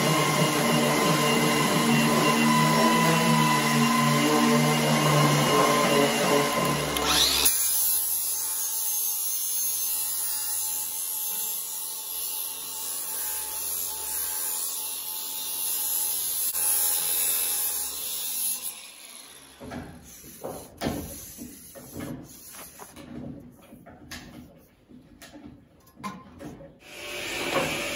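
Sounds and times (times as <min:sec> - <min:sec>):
angle grinder grinding steel: 0:00.0 - 0:22.9
knocks and scrapes on metal: 0:19.6 - 0:26.8.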